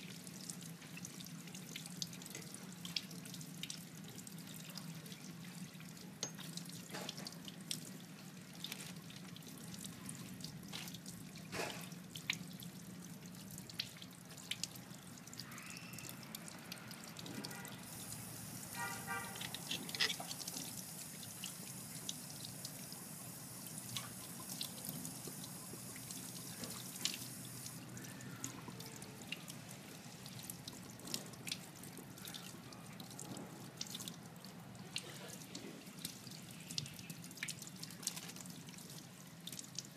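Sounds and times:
hands rubbing squid under water: 19.2s - 20.5s.

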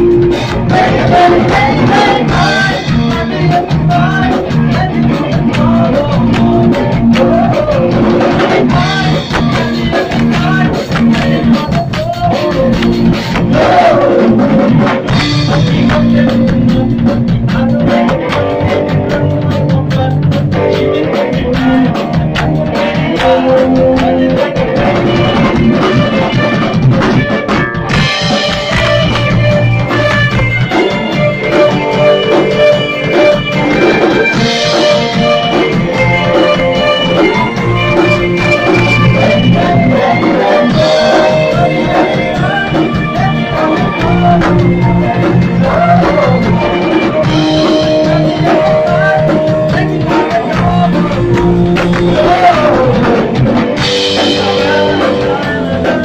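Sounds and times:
drum kit: 0.0s - 56.0s
electric bass: 0.0s - 56.0s
electric guitar: 0.0s - 56.0s.

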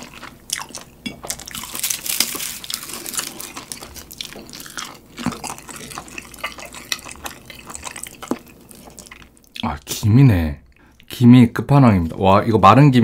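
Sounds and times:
seaweed sheet crackling: 1.6s - 4.2s.

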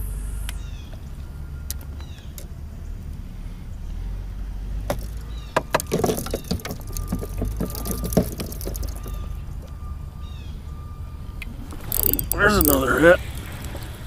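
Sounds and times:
fishing rod rattling in holder: 4.9s - 9.7s, 11.7s - 14.0s.

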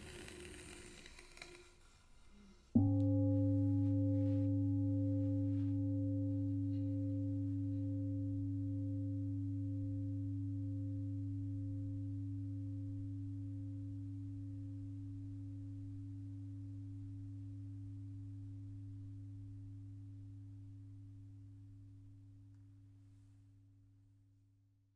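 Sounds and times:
singing bowl ringing: 2.8s - 22.5s.

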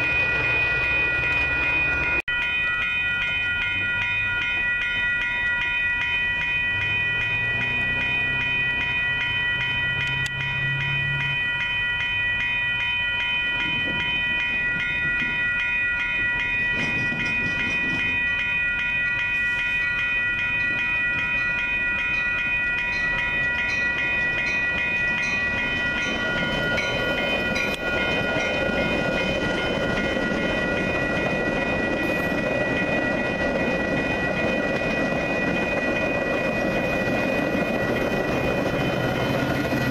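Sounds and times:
railroad crossing bell ringing: 0.0s - 39.9s
train rumbling: 0.0s - 39.9s.

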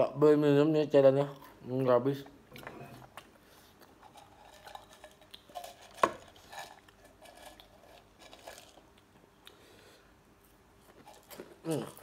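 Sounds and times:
crisps clattering in a can: 4.0s - 8.9s.

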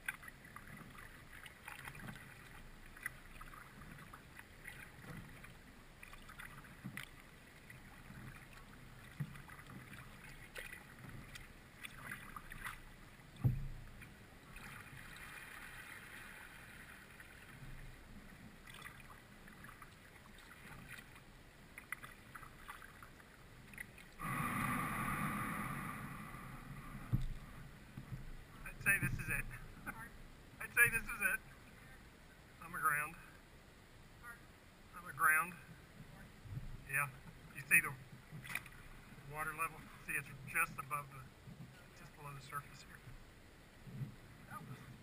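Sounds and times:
paddle drips and splashes: 0.0s - 25.4s, 26.6s - 29.9s, 36.6s - 45.0s
hull scraping creek bottom: 0.0s - 32.0s, 35.0s - 43.2s
knock on kayak: 13.4s - 13.8s.

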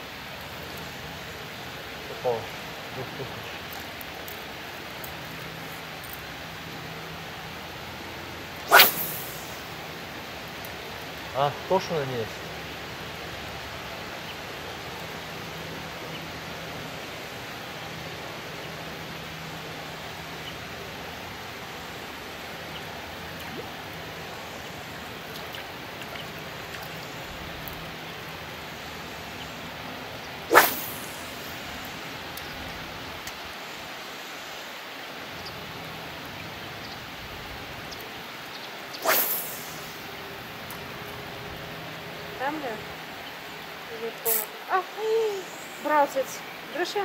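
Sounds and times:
steady outdoor hiss: 0.0s - 47.0s
fishing rod casting swish: 8.7s - 9.7s, 30.5s - 31.7s, 39.0s - 40.1s.

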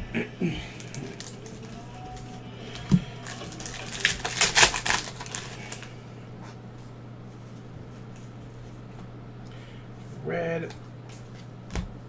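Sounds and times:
foil wrapper crinkling: 0.7s - 6.0s.

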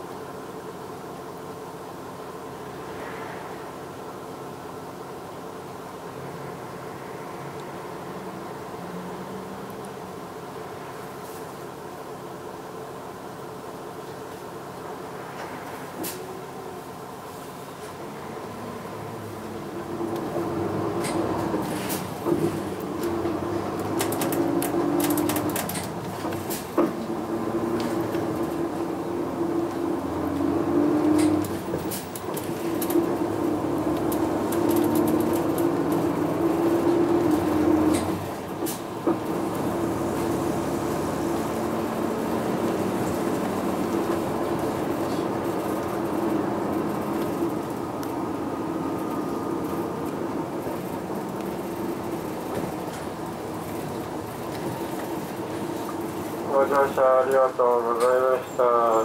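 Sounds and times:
bus engine and drivetrain hum: 0.0s - 59.0s
road noise: 0.0s - 59.0s
bus fittings clicking and rattling: 21.0s - 27.1s, 31.0s - 39.4s.

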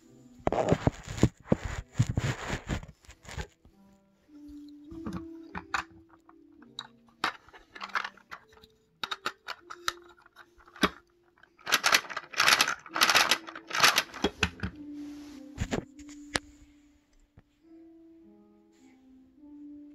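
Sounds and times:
soft background music: 0.0s - 19.9s
plastic pieces clicking and rattling: 4.9s - 14.8s.

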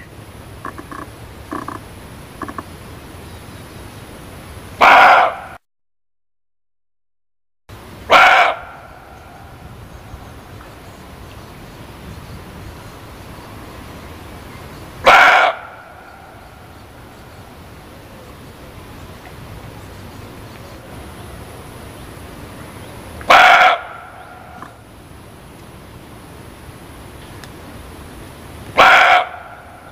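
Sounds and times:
steady background hiss: 0.0s - 4.8s, 7.7s - 29.9s
deer barking: 4.8s - 5.6s, 8.1s - 9.0s, 15.0s - 16.4s, 23.3s - 24.7s, 28.8s - 29.9s.

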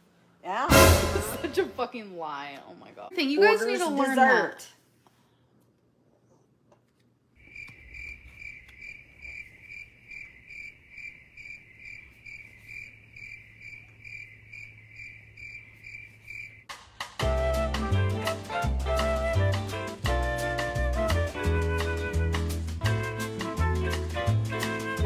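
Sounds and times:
music: 0.6s - 1.9s, 16.7s - 25.0s
cricket chirping: 7.4s - 16.7s.

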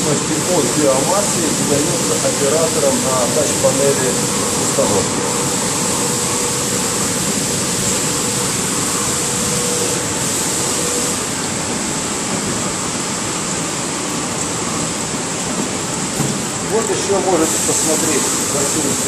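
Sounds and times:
pumps running: 0.0s - 11.3s
water rushing through tanks: 0.0s - 19.0s.

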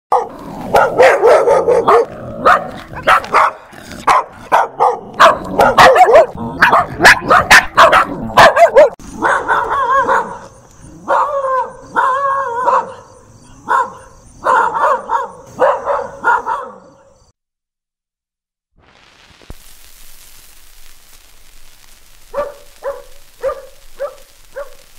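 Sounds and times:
dog barking: 0.1s - 17.2s, 22.3s - 24.9s
faint high hiss: 18.8s - 24.9s.

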